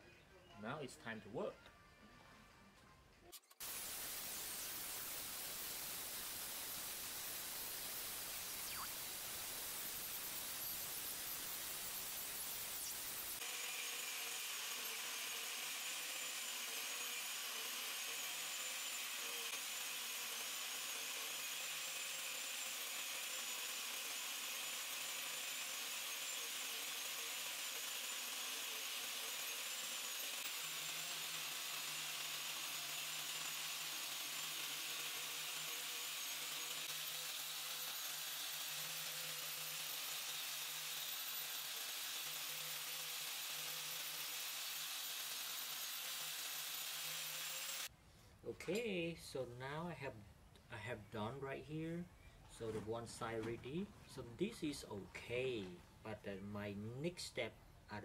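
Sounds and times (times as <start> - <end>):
angle grinder cutting steel: 3.4 - 47.9.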